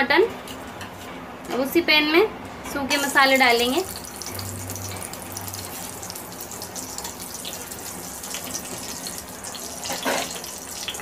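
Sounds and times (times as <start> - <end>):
spices sizzling in oil: 2.9 - 11.0.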